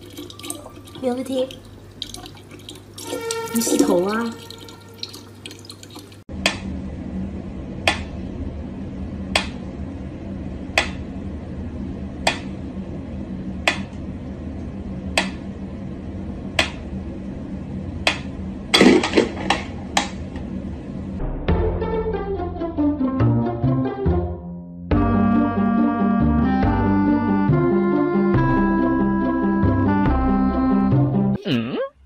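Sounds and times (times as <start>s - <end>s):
low steady hum: 0.0s - 21.4s.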